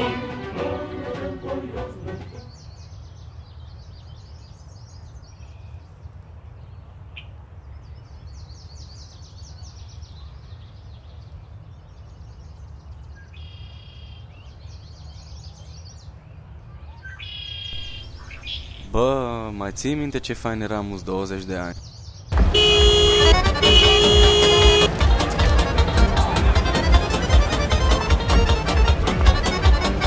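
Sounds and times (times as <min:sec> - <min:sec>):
songbirds chirping and trilling: 0:01.1 - 0:23.2.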